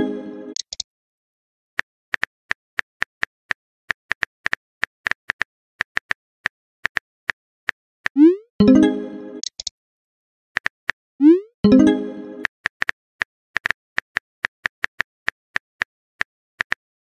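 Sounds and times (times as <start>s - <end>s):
message pop chime: 8.2s - 9.5s, 11.6s - 12.5s.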